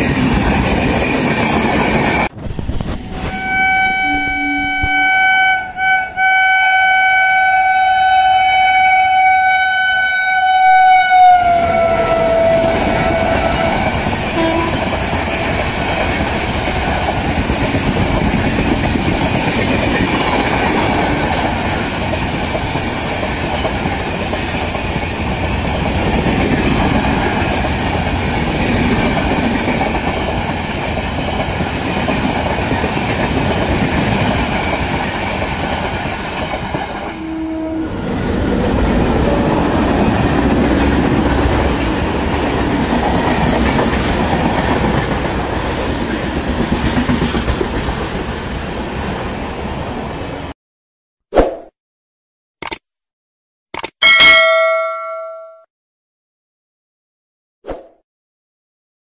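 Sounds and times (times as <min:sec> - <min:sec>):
locomotive horn: 0:03.0 - 0:15.0, 0:37.0 - 0:38.1
train coaches rushing past: 0:11.4 - 0:50.4.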